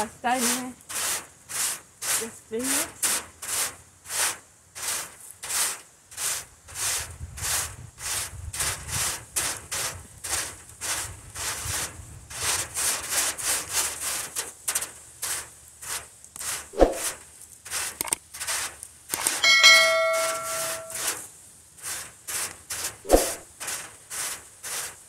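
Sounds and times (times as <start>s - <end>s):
grill brush scrubbing wire grate: 0.0s - 25.0s
ringing metallic clang: 19.4s - 21.0s.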